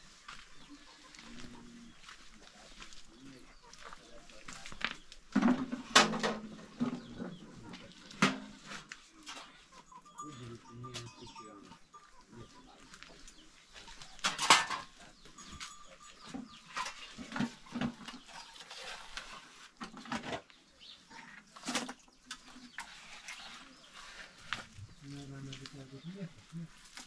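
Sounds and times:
metal pail knocking and clattering: 5.3 - 9.5, 14.2 - 18.8.

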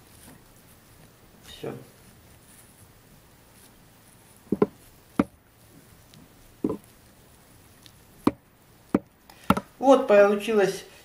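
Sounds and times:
objects knocking on tabletop: 4.5 - 5.3, 8.2 - 9.7.

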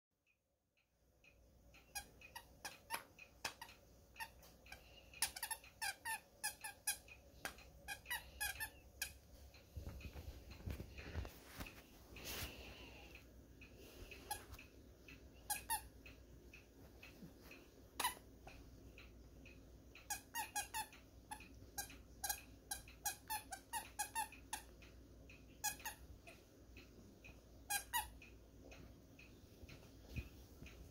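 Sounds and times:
squeaky toy squeaking: 1.9 - 4.5, 5.2 - 9.2, 15.4 - 15.9, 18.0 - 18.2, 20.1 - 24.7, 25.6 - 26.0, 27.7 - 28.2.

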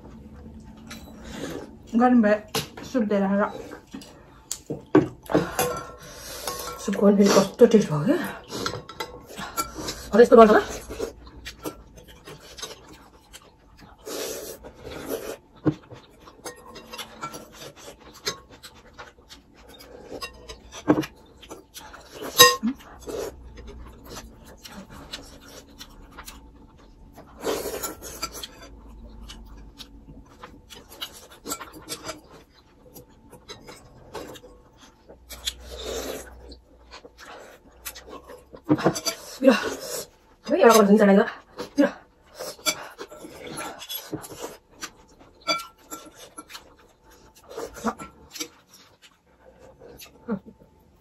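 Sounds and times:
cutlery clinking on glass bowls: 22.2 - 22.7, 45.4 - 46.5.

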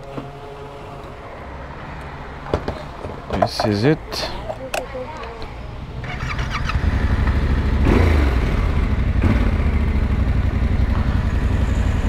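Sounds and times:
motorcycle engine idling: 6.0 - 12.0.

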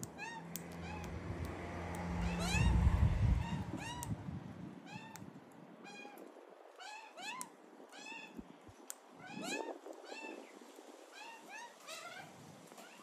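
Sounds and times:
parrots calling: 2.2 - 4.1.

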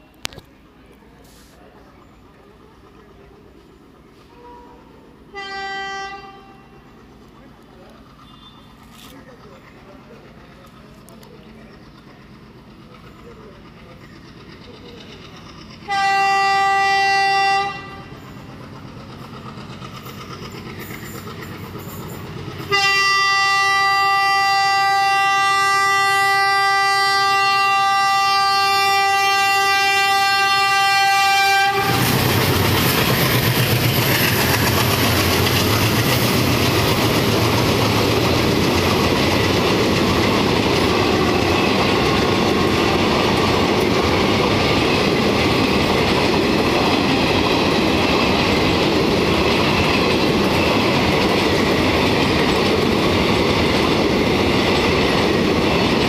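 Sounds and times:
locomotive air horn blast: 4.3 - 6.8, 15.9 - 18.1, 22.6 - 32.2
train wheels clattering over rail joints: 7.3 - 25.9, 27.4 - 56.0.

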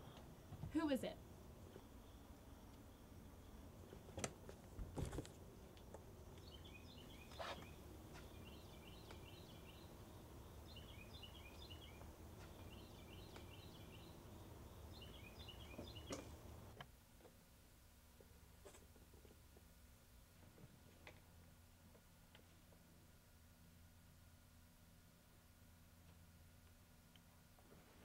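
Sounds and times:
bird chirping: 5.6 - 16.8.

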